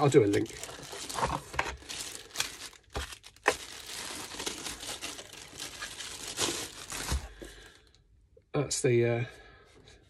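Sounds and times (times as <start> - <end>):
plastic bag crinkling: 0.0 - 7.9.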